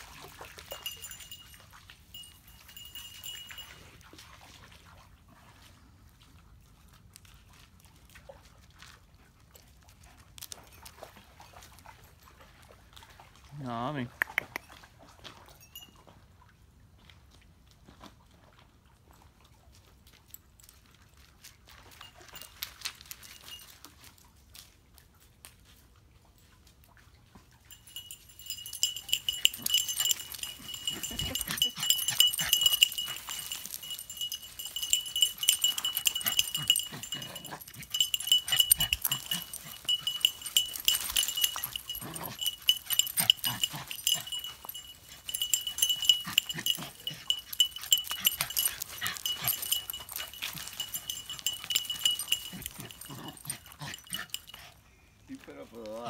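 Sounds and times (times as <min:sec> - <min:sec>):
small bell jingling: 0:00.0 - 0:04.0, 0:15.6 - 0:16.1, 0:21.8 - 0:24.2, 0:27.6 - 0:54.8.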